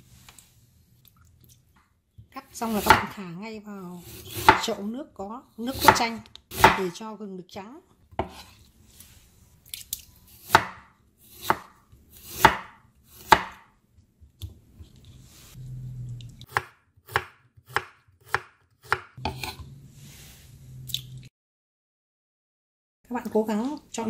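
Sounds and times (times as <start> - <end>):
knife chopping on wooden board: 2.8 - 3.1, 4.1 - 4.7, 5.7 - 7.0, 8.1 - 8.6, 10.4 - 13.7, 16.5 - 19.6.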